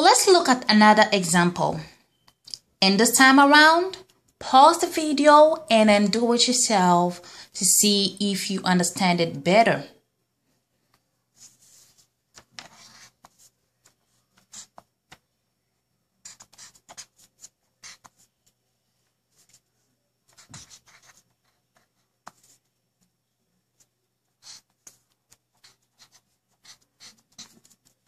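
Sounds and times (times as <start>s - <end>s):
marker drawing on paper: 11.3s - 15.2s, 16.2s - 18.6s, 20.3s - 22.8s, 23.7s - 28.0s.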